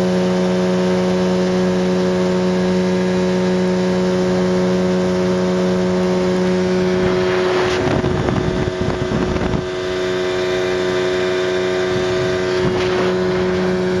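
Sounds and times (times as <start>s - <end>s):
outboard motor running: 0.0s - 14.0s
rushing noise: 6.2s - 11.0s.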